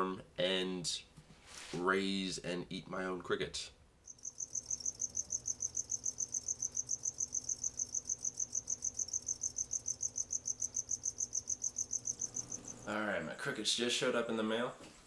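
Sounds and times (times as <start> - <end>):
crickets chirping: 4.1 - 13.0.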